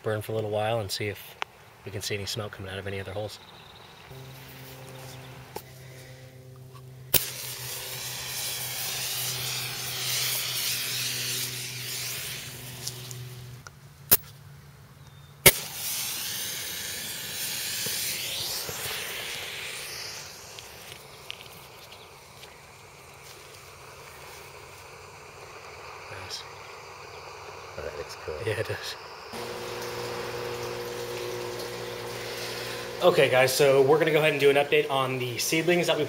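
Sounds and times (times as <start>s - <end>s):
fuse hissing: 4.0s - 14.2s, 15.4s - 36.0s.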